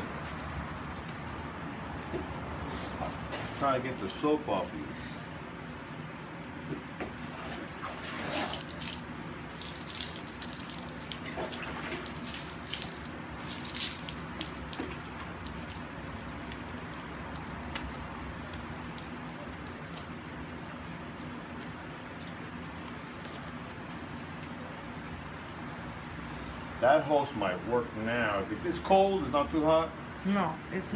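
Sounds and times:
water splashing: 0:07.3 - 0:26.8.

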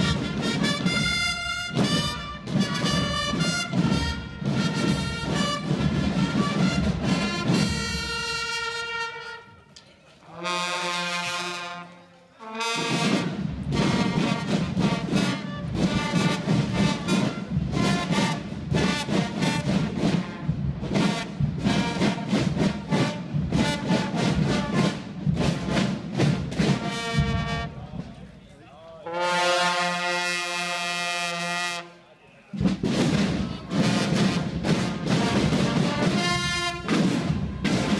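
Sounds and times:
steady drum beats: 0:00.0 - 0:09.1, 0:12.6 - 0:28.4, 0:32.5 - 0:37.9
brass band playing march music: 0:00.0 - 0:28.3, 0:29.0 - 0:37.9
brass chord: 0:10.4 - 0:19.8, 0:26.7 - 0:27.8, 0:29.1 - 0:32.0, 0:33.8 - 0:37.9.

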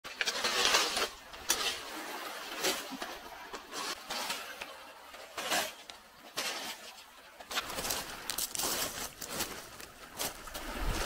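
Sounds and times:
pebbles crunching and rattling: 0:07.5 - 0:11.0.

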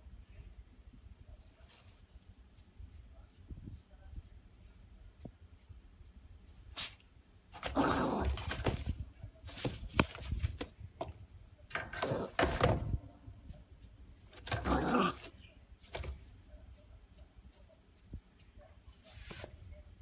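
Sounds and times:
puppy scrabbling at crate bars: 0:07.6 - 0:13.0, 0:14.3 - 0:15.3.

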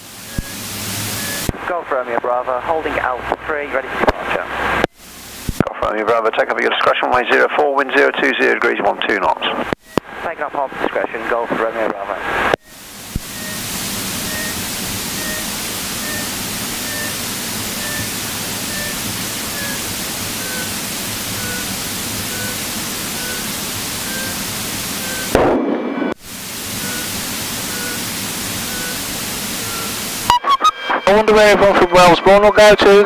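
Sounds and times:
radio static hiss: 0:00.0 - 0:33.0
faint short beeps: 0:01.2 - 0:01.5, 0:12.6 - 0:17.2, 0:17.8 - 0:19.8, 0:20.4 - 0:20.7, 0:21.4 - 0:21.7, 0:22.3 - 0:24.4, 0:25.0 - 0:26.1, 0:26.8 - 0:28.0, 0:28.6 - 0:29.0.

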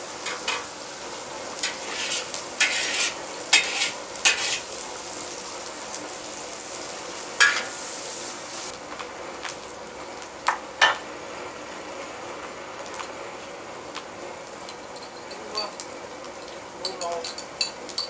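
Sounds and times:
vegetables sizzling in wok: 0:00.0 - 0:18.0
metal utensils scraping and clanking: 0:00.2 - 0:00.7, 0:01.6 - 0:04.8.

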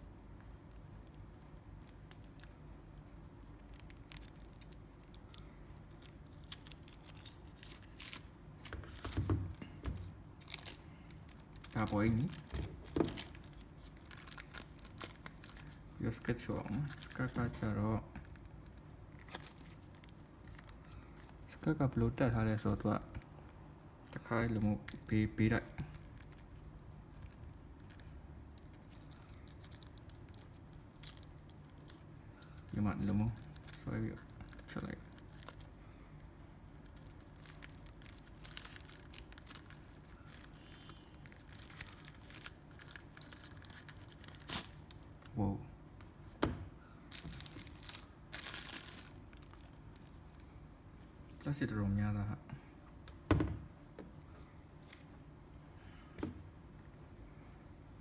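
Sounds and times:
low steady hum: 0:00.0 - 0:58.0
plastic wrapping crinkling: 0:00.7 - 0:23.0, 0:24.4 - 0:45.4, 0:47.1 - 0:50.5.

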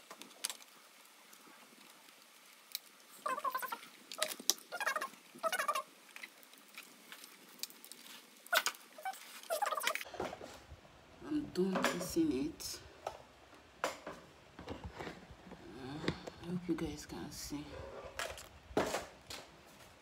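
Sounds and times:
plastic parts squeaking: 0:03.1 - 0:07.4, 0:08.0 - 0:10.4.

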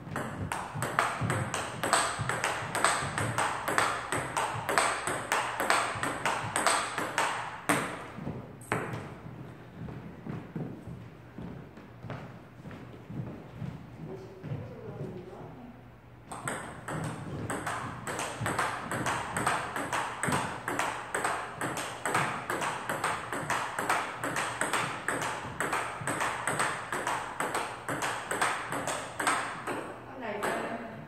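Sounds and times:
ping-pong ball clicks: 0:16.3 - 0:30.7.

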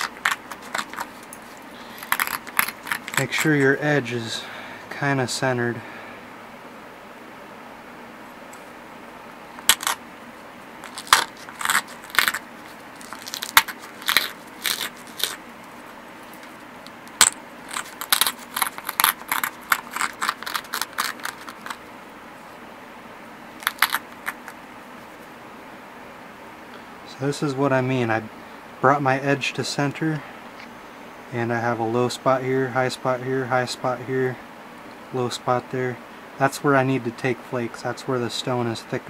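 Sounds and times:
stone scraping obsidian edge: 0:00.0 - 0:03.5, 0:10.8 - 0:15.4, 0:17.2 - 0:21.8.

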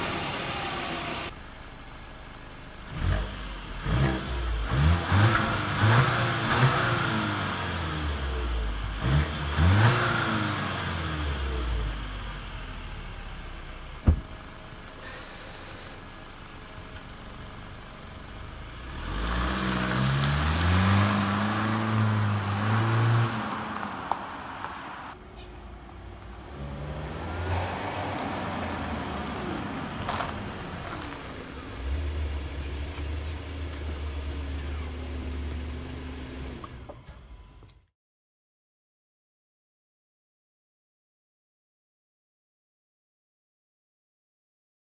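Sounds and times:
car engine accelerating: 0:02.8 - 0:25.2, 0:25.9 - 0:37.0
sharp thump: 0:14.0 - 0:14.4.

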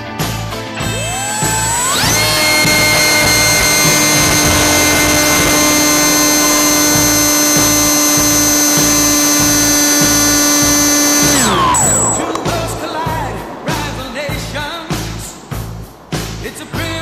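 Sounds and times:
electric motor propeller whine: 0:00.9 - 0:14.3.

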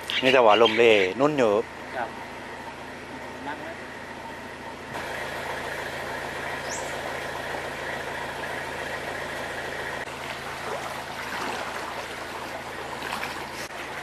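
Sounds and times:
steady hum: 0:00.0 - 0:14.0
water sloshing around wading legs: 0:09.4 - 0:14.0
water splashes: 0:09.4 - 0:14.0.

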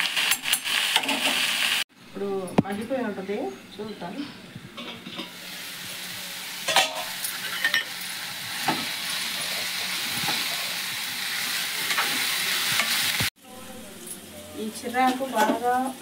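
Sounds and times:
greens sizzling in hot oil: 0:00.0 - 0:01.9, 0:05.3 - 0:13.3, 0:13.9 - 0:16.0
utensils knocking on pan: 0:06.7 - 0:07.9.

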